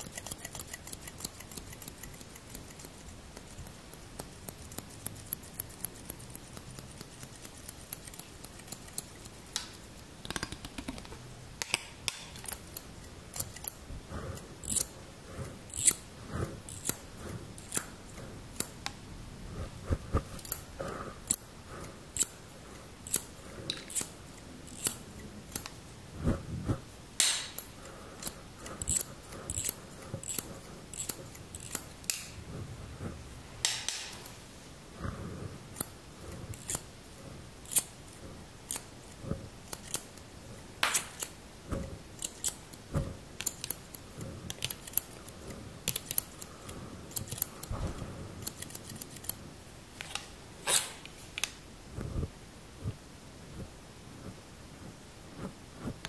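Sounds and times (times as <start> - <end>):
scissors snipping: 0.0 - 13.8, 15.7 - 16.0, 16.7 - 19.0, 23.0 - 25.8, 27.2 - 32.4, 36.6 - 36.9, 38.7 - 40.2, 40.8 - 41.4, 42.2 - 46.5, 47.1 - 47.7, 48.4 - 49.4.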